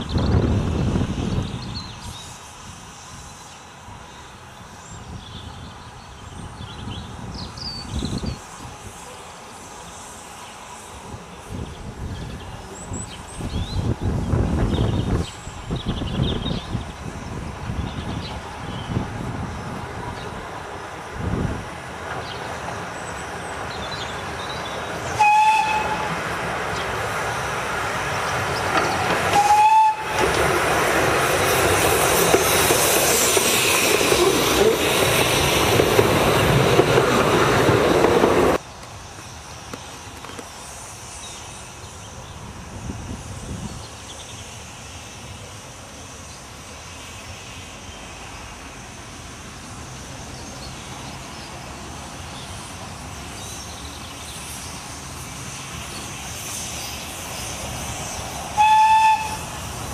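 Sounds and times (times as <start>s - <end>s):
steam train running past: 0.0s - 59.9s
steam train whistle toots: 25.1s - 26.2s, 29.3s - 30.3s, 58.5s - 59.7s.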